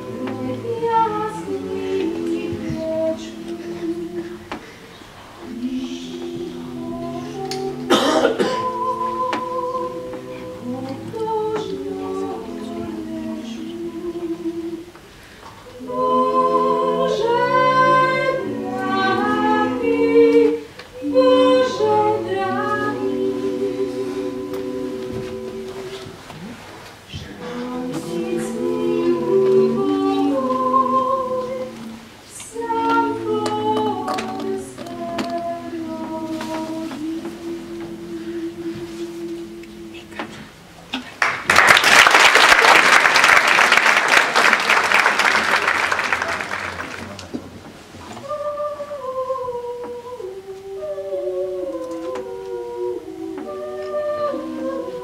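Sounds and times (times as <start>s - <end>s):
vocal ensemble singing a cappella: 0.0s - 55.0s
audience applause: 41.2s - 47.3s.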